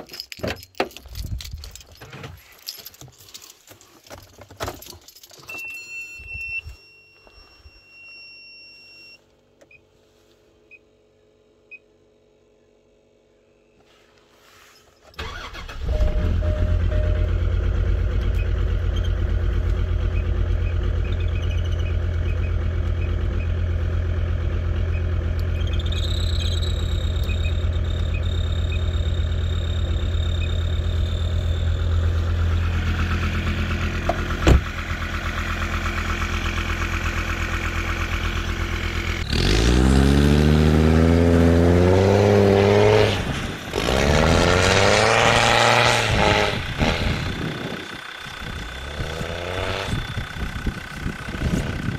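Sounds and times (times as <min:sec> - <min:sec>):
diesel engine idling and revving: 0:15.2 - 0:51.9.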